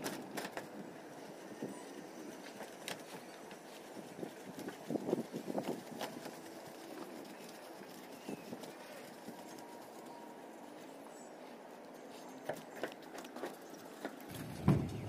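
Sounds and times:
loud thump on a metal roof: 14.3 - 15.0
taps on a metal roof: 14.3 - 15.0.

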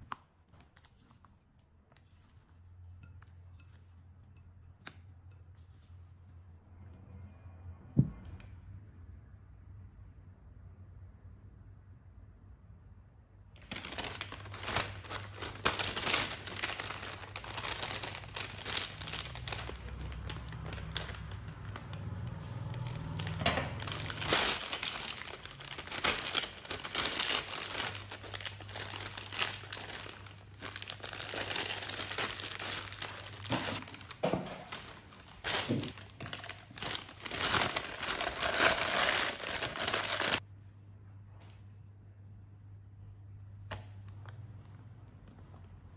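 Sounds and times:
plastic bag crinkling: 13.6 - 40.4.

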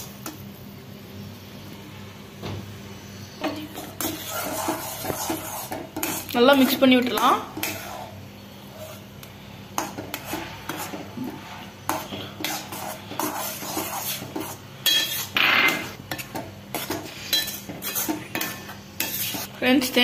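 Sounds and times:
metal spoon scraping pan: 3.4 - 9.2, 9.8 - 20.0.

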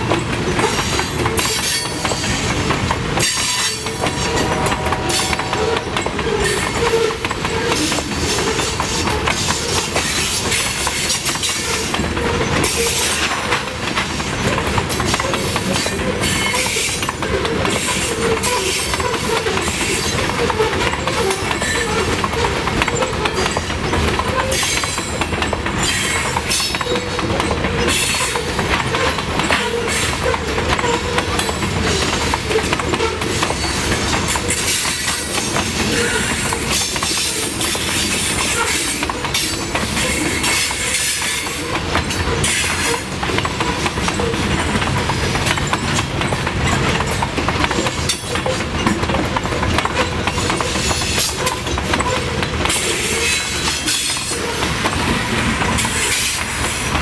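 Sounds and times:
train wheels clattering over rail joints: 0.0 - 57.0
wavering wheel squeal: 3.3 - 10.3.

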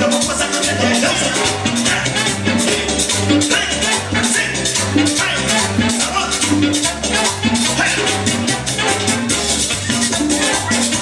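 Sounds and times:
latin dance music: 0.0 - 11.0.

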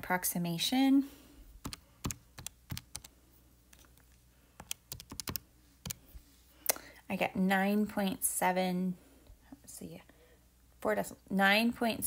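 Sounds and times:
calculator keys clicking: 1.6 - 3.1, 4.6 - 6.0.

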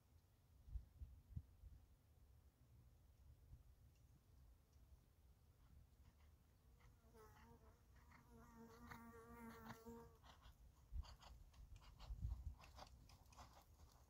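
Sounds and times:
horse hoofbeats on sand: 6.0 - 14.0
fly buzzing: 7.0 - 10.2.

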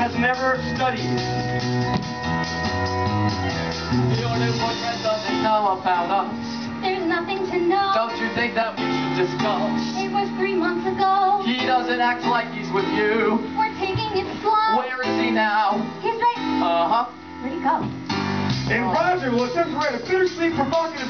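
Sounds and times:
guitar-led band: 0.0 - 10.2, 13.8 - 21.0
young performers singing: 4.1 - 17.1.

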